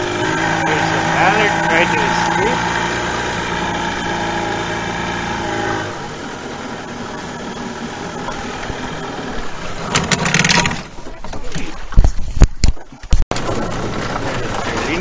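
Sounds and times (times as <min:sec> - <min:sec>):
water rushing: 0:00.0 - 0:12.0
outboard motor running: 0:00.0 - 0:15.0
wind: 0:00.0 - 0:15.0
knocks and rattle: 0:09.8 - 0:15.0.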